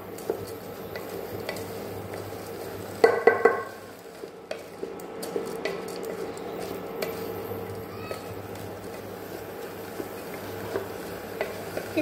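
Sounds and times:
food sizzling: 0:00.0 - 0:12.0
knocks against pot: 0:03.0 - 0:03.7
spatula scraping pot: 0:08.1 - 0:12.0.

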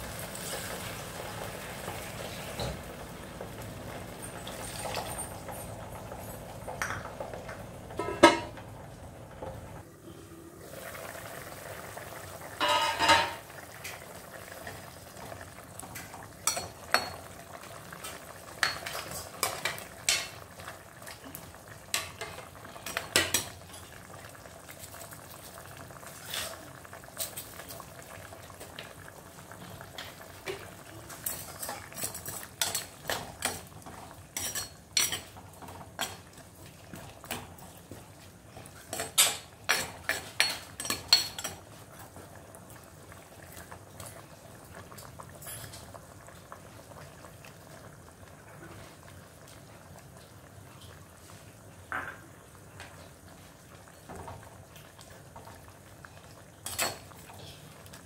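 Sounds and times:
curry simmering: 0:00.0 - 0:58.0
spoon clinking and scraping pot: 0:08.0 - 0:08.6, 0:12.6 - 0:13.4, 0:16.4 - 0:17.2, 0:31.2 - 0:33.6, 0:34.4 - 0:35.4, 0:38.8 - 0:41.6.

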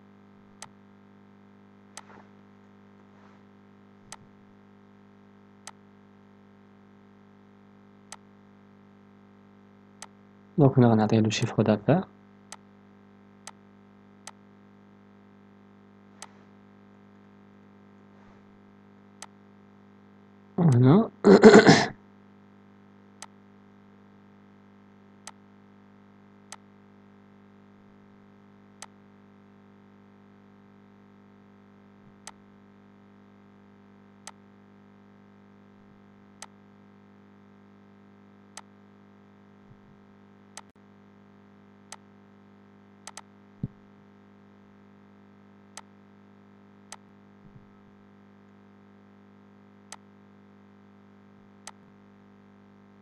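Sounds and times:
faint electrical hum: 0:00.0 - 0:53.0
computer mouse clicking: 0:43.1 - 0:43.3.

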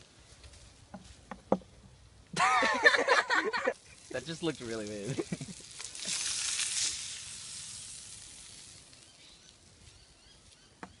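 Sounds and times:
fish sizzling in butter: 0:03.8 - 0:09.6.

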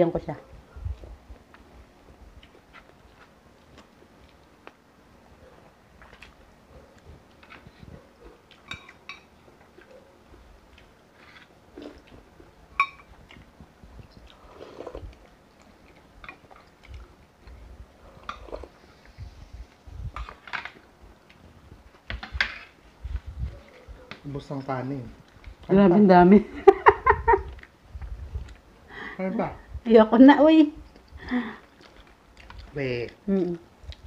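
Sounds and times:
person chewing: 0:02.3 - 0:04.8, 0:06.0 - 0:21.4, 0:30.9 - 0:33.2
spoon clinking on plates: 0:08.6 - 0:09.3, 0:12.8 - 0:13.1.

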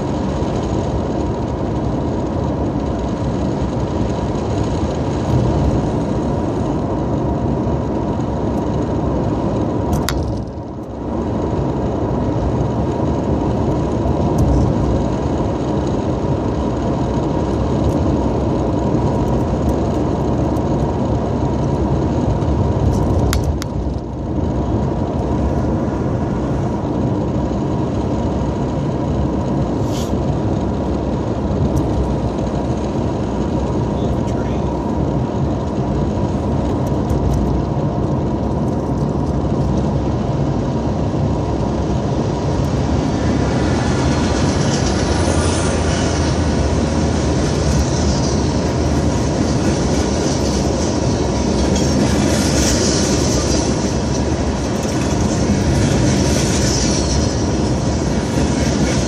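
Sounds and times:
car engine and road noise inside cabin: 0:00.0 - 0:59.0.

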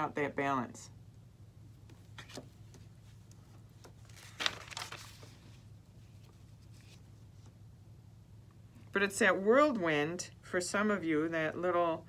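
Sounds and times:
paper rustling: 0:01.9 - 0:07.5.

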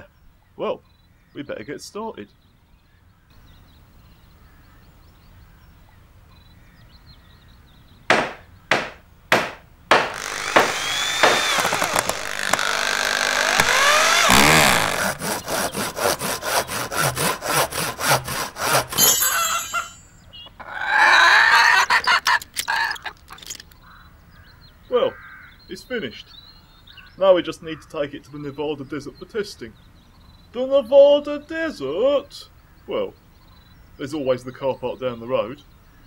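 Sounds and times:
hammer-like knocks: 0:08.1 - 0:15.1
knocking: 0:08.1 - 0:20.0
sawing: 0:08.1 - 0:20.0
squeaky rising and falling tones: 0:10.1 - 0:15.6.

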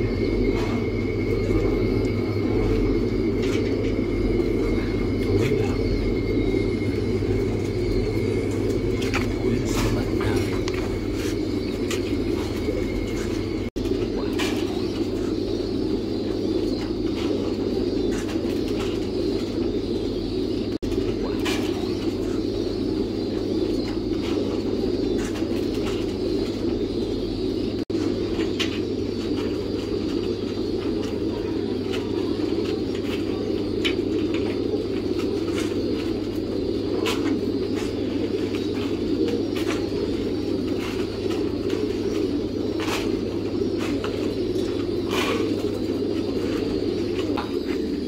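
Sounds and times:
pigeons cooing: 0:00.0 - 0:48.0.

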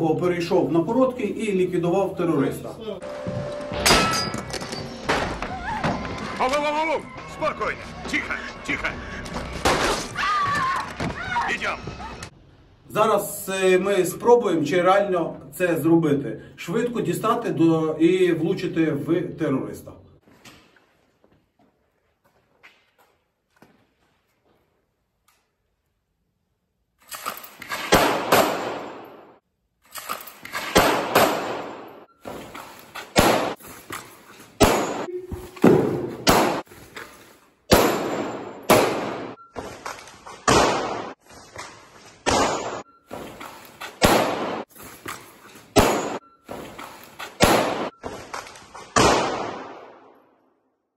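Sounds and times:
echoing gunshots indoors: 0:27.7 - 0:29.4, 0:30.5 - 0:32.2, 0:33.1 - 0:33.6, 0:34.6 - 0:36.7, 0:37.7 - 0:39.5, 0:40.4 - 0:41.2, 0:42.2 - 0:43.0, 0:44.0 - 0:44.7, 0:45.7 - 0:46.4, 0:47.4 - 0:48.0, 0:48.8 - 0:50.7.

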